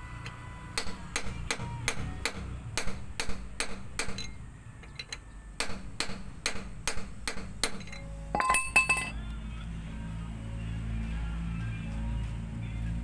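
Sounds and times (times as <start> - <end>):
hammer tapping on metal: 0.8 - 4.3, 4.9 - 9.1.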